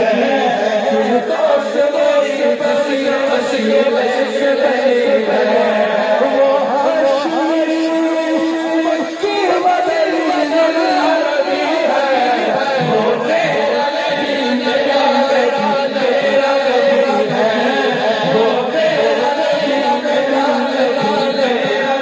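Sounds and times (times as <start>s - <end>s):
man chanting into a microphone: 0.0s - 22.0s
overlapping voices: 0.0s - 22.0s.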